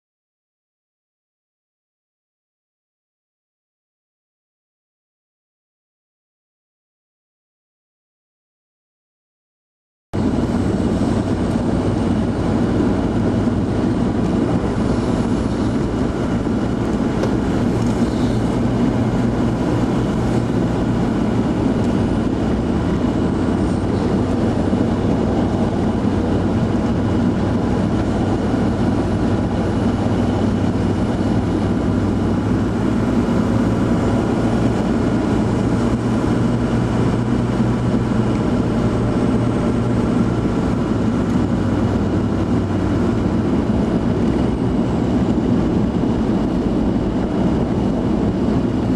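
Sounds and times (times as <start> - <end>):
road noise inside cabin: 10.2 - 48.9
vehicle engine drone: 10.2 - 48.9.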